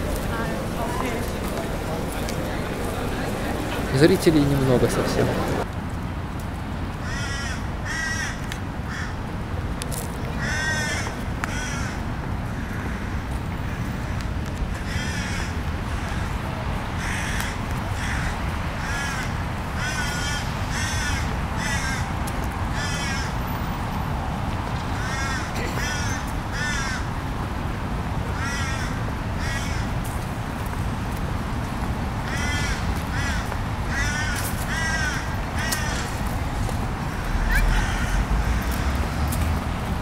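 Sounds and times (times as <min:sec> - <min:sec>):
crows cawing: 0:07.0 - 0:09.2, 0:10.4 - 0:16.4, 0:17.0 - 0:23.4, 0:25.0 - 0:27.1, 0:28.3 - 0:30.0, 0:32.2 - 0:39.3.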